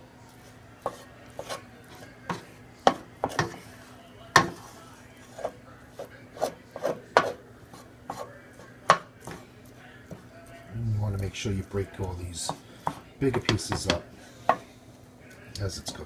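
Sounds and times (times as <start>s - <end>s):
wooden spoon knocking on skillet: 2.3s - 3.6s, 4.3s - 4.6s, 8.8s - 9.4s, 12.4s - 14.7s.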